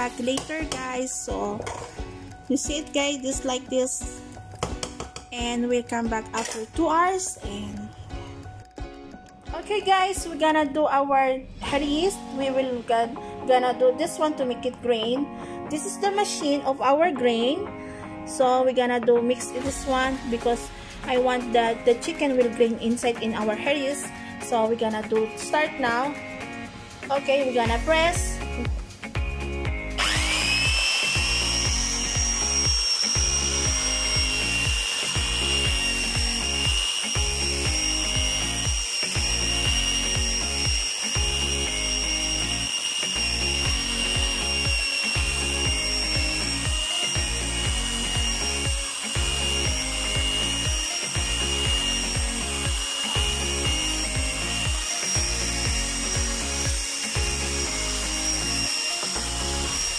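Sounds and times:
electric drill mixer whining: 0.0s - 5.4s, 27.8s - 59.9s
background music with beat: 19.0s - 59.9s.

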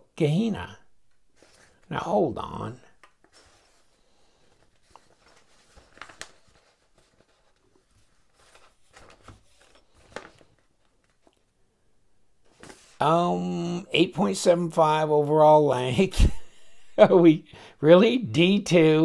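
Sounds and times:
paper rustling: 1.3s - 1.9s, 3.0s - 11.5s, 12.4s - 13.0s.

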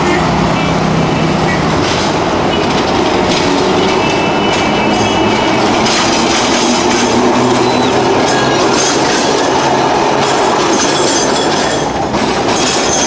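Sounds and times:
tram wheels clattering on rails: 0.0s - 13.0s
high wheel squeal: 3.5s - 12.0s.

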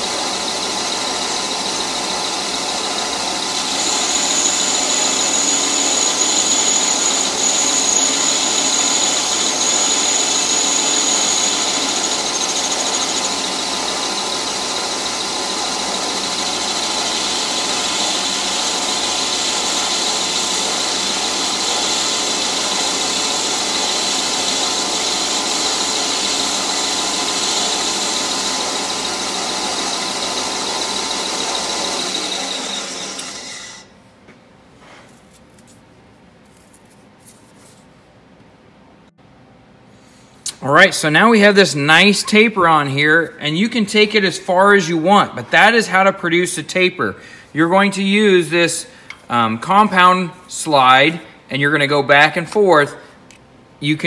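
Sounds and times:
high-pitched cutting squeal: 0.0s - 33.9s
metal lathe running: 0.0s - 33.9s.

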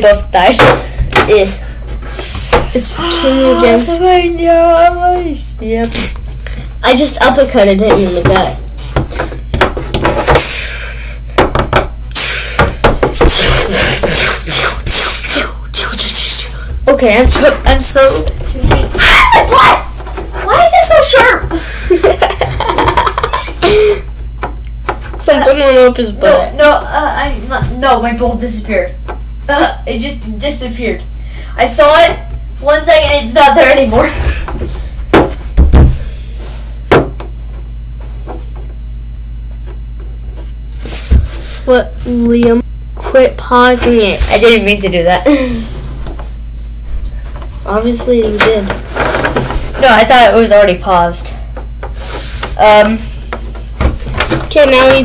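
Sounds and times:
steady low hum: 0.0s - 55.0s
sharp knocks: 11.4s - 11.9s.

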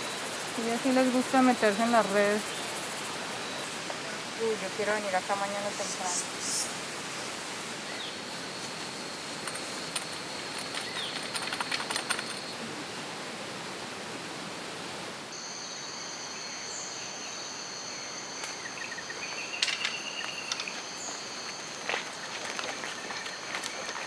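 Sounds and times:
insects trilling: 0.0s - 13.9s, 15.3s - 24.0s
high insect drone: 0.0s - 24.0s
rustling clicks: 9.4s - 12.5s.

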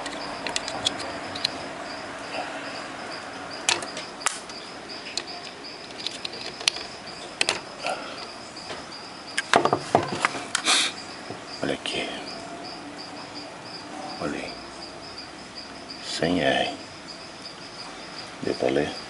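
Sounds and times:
clicks and knocks of handled parts: 0.0s - 1.6s, 3.6s - 8.8s.

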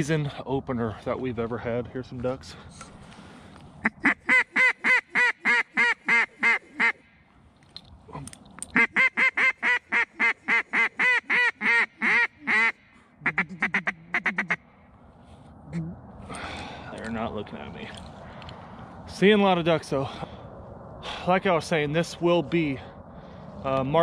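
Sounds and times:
duck call quacks: 3.8s - 7.0s, 8.8s - 14.6s.

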